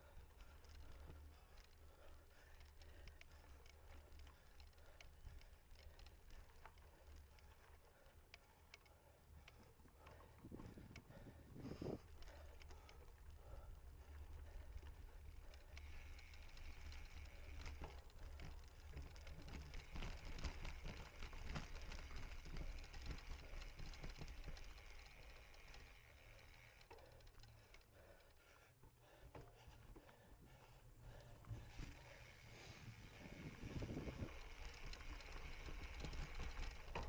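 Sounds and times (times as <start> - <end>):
bike rattles and knocks: 31.5 - 37.0.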